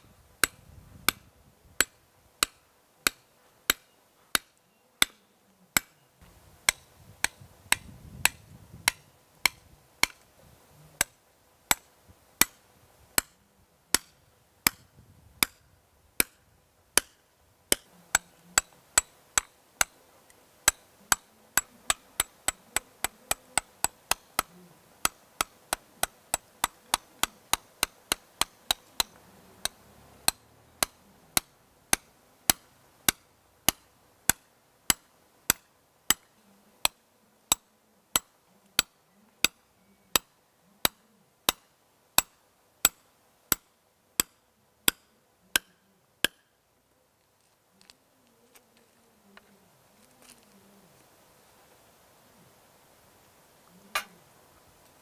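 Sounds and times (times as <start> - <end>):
hammer striking steel chisel: 0.4 - 5.2, 5.8 - 6.0, 6.6 - 10.2, 11.0 - 12.6, 13.2 - 15.6, 16.2 - 16.4, 17.0 - 20.0, 20.6 - 46.5.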